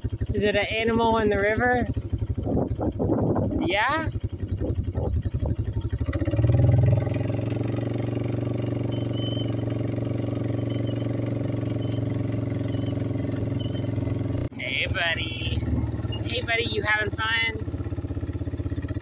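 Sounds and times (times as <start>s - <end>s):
atv engine running: 0.0s - 19.0s.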